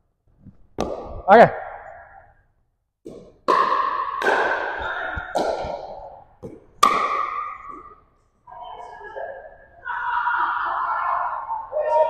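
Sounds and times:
paddles hitting plastic ball: 0:00.7 - 0:01.3, 0:03.0 - 0:08.0.

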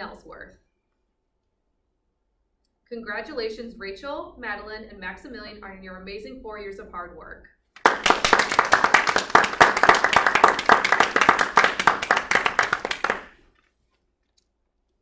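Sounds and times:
hands clapping: 0:07.8 - 0:13.5.

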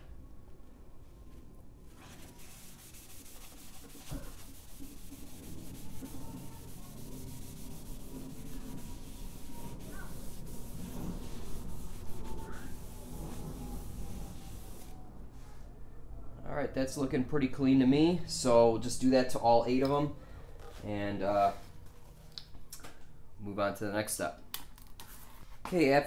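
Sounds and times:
towel rubbing cylinder wall: 0:01.9 - 0:15.1.

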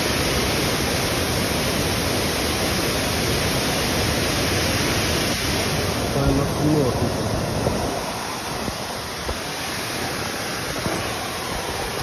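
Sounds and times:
waterfall rushing: 0:00.0 - 0:12.0.

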